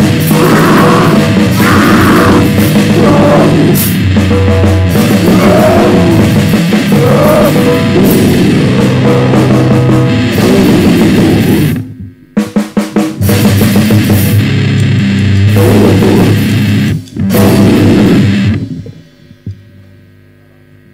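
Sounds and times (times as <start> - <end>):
drum hits: 0.0 - 19.0
noise band playing: 0.0 - 19.4
low electrical hum: 14.4 - 20.9.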